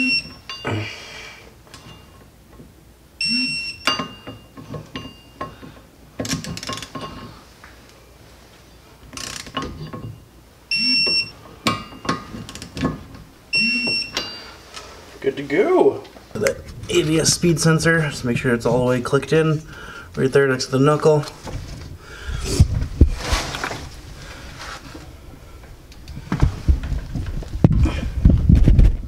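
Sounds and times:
torque wrench beeping: 0:00.0 - 0:00.7, 0:03.2 - 0:05.4, 0:10.7 - 0:12.2, 0:13.5 - 0:14.5.

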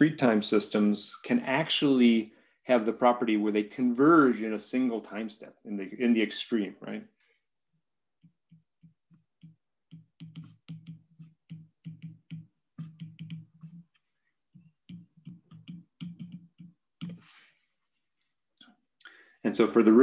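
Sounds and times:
stylus tapping on glass screen: 0:08.2 - 0:17.3.

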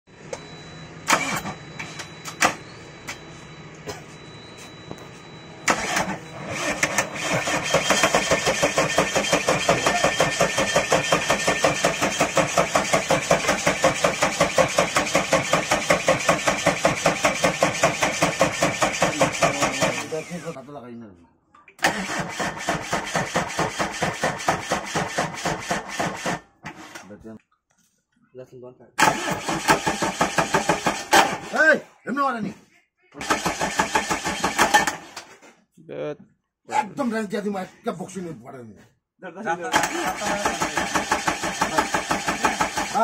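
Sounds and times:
diesel engine cranking: 0:01.0 - 0:02.8, 0:05.6 - 0:20.6, 0:21.8 - 0:27.2, 0:29.0 - 0:31.7, 0:33.2 - 0:35.4, 0:39.7 - 0:43.0.

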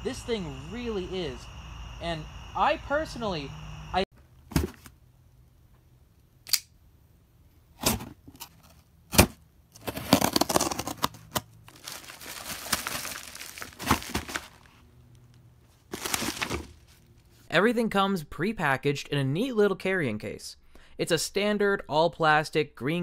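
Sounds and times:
packing tape being torn: 0:09.8 - 0:14.6
plastic packaging rustling: 0:09.8 - 0:14.8, 0:15.7 - 0:17.1.

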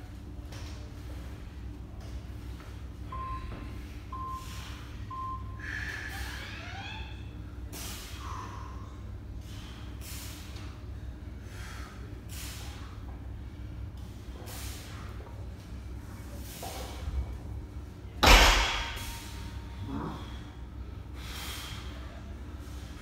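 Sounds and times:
electronic timer beeps: 0:05.1 - 0:05.6.

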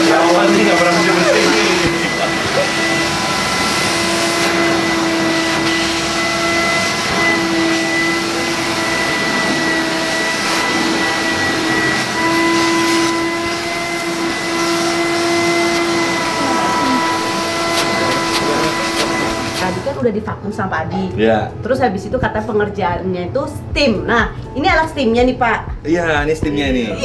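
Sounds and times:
vacuum cleaner running: 0:00.0 - 0:20.1.

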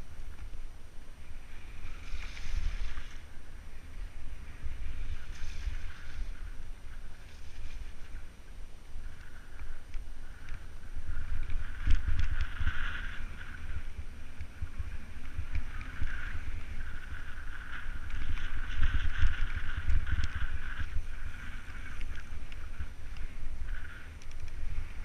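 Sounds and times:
wind buffeting microphone: 0:00.0 - 0:25.0
tyre hiss on snow: 0:01.2 - 0:08.3
bike rattling over bumps: 0:01.4 - 0:25.0.

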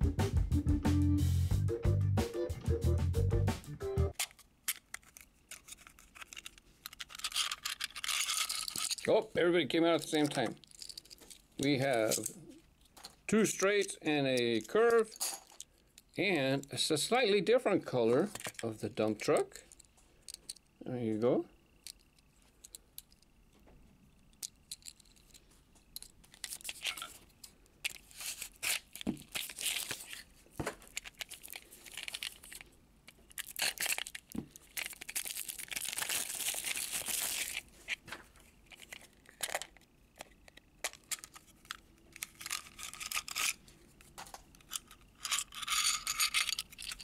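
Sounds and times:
packaging crinkling: 0:04.1 - 0:09.1, 0:27.8 - 0:45.4
packaging tearing: 0:04.1 - 0:09.1, 0:27.9 - 0:32.6, 0:33.2 - 0:38.0.

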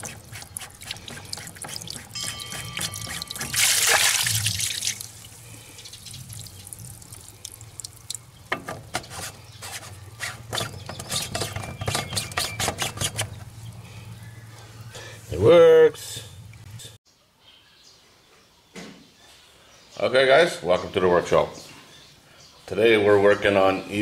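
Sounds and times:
water dripping: 0:00.0 - 0:08.7
water rushing from pipe: 0:00.0 - 0:10.5.

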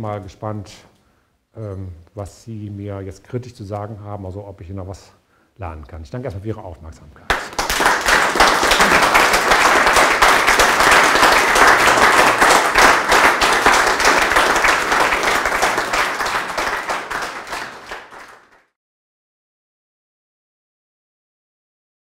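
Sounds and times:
audience applauding: 0:07.3 - 0:18.7.

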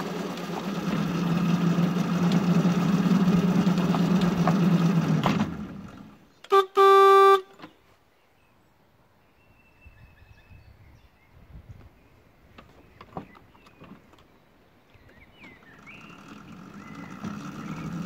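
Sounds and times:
train horn toots: 0:06.5 - 0:07.6.

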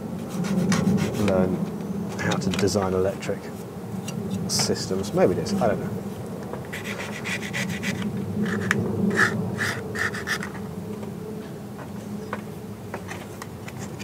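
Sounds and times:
hand scraping mower blades: 0:06.7 - 0:10.6, 0:13.0 - 0:14.0.

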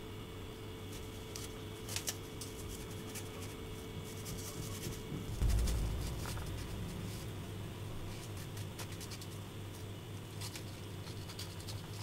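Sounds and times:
low hum: 0:05.3 - 0:09.8.

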